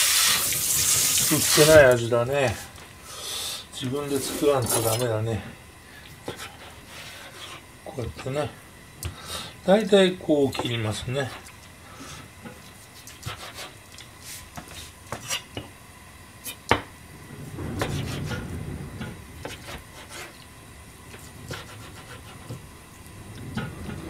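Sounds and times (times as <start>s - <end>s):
low rumble: 17.1s - 19.4s, 23.0s - 24.0s.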